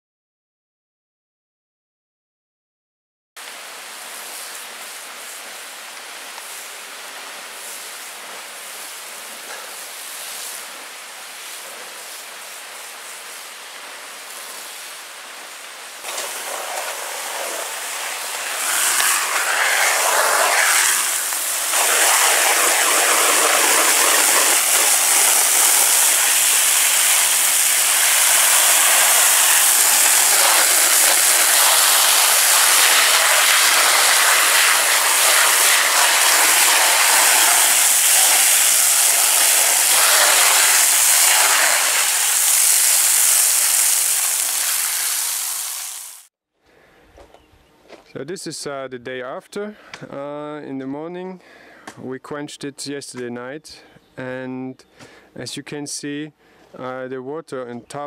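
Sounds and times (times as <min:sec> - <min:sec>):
hose spray hissing on hot char: 0:04.0 - 0:46.3.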